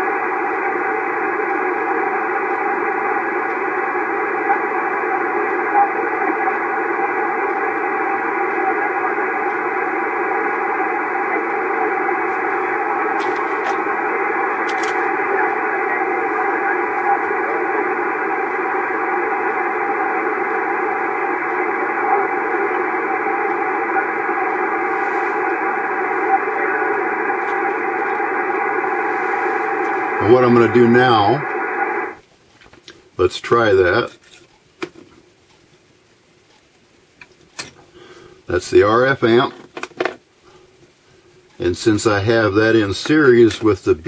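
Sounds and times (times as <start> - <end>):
faint radio voices: 0.0 - 32.2
radio static: 0.0 - 32.2, 33.2 - 34.2, 38.0 - 39.6, 41.5 - 44.0.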